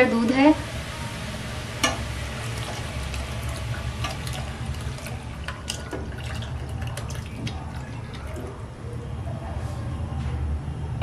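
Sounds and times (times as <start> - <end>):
milk pouring and splashing: 2.4 - 8.7.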